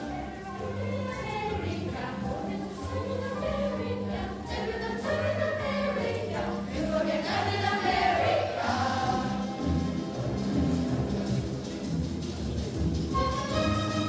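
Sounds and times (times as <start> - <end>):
children's choir singing: 0.0 - 9.8.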